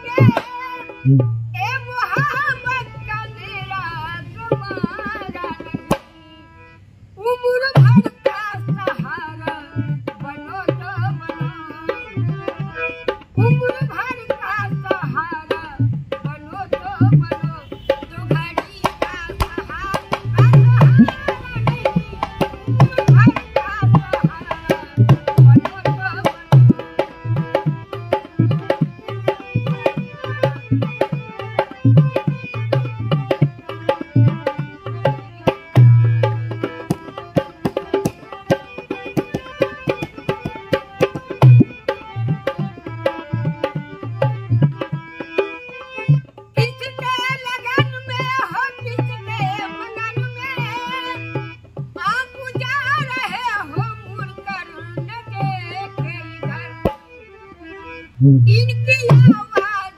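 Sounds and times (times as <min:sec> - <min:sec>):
person singing: 0:00.0 - 0:01.2, 0:07.2 - 0:12.6, 0:13.4 - 0:27.4
hand drum rhythm: 0:00.0 - 0:02.8, 0:04.5 - 0:06.1, 0:07.6 - 0:57.0, 0:58.2 - 0:59.9
harmonium melody: 0:00.0 - 0:59.9.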